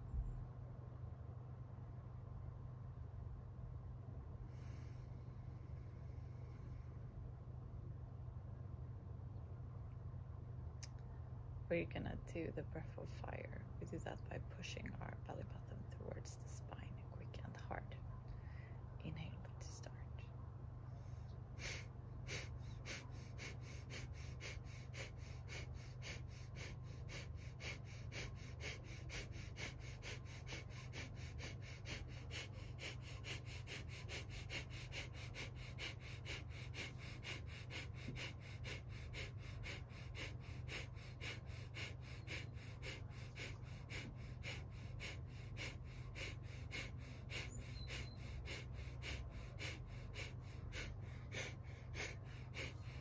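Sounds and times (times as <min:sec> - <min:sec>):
woman's rapid nasal exhalations: 0:21.6 - 0:53.0.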